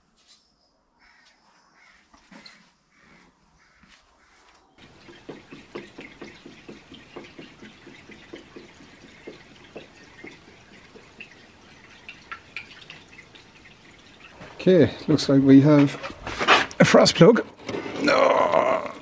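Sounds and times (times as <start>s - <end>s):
liquid glugging from a plastic jug: 4.8s - 15.1s.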